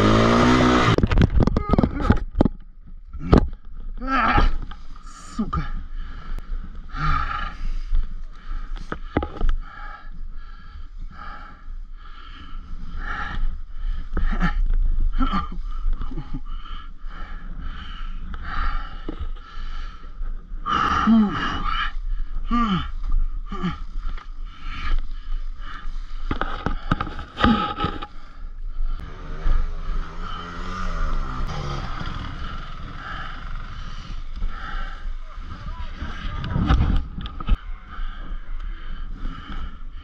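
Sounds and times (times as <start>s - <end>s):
motorcycle engine running: 0.0s - 1.1s, 29.0s - 36.5s
motorcycle scraping on dirt: 0.0s - 1.4s, 28.9s - 37.0s
strained grunts of effort: 3.1s - 6.2s, 6.9s - 7.8s, 13.0s - 17.4s, 20.6s - 24.9s, 25.6s - 36.7s
heavy breathing: 3.2s - 40.0s.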